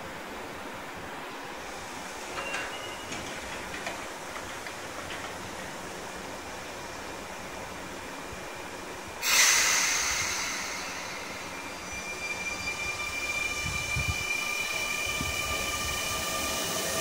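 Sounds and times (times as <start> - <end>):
electric train humming: 1.5 - 17.0
air brakes hissing: 9.2 - 17.0.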